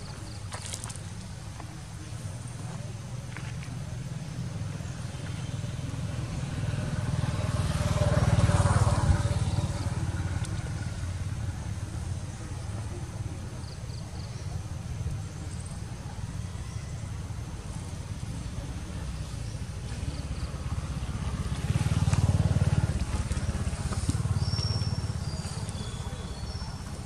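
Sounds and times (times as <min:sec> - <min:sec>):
motor vehicle engine rumble: 0:00.0 - 0:27.0.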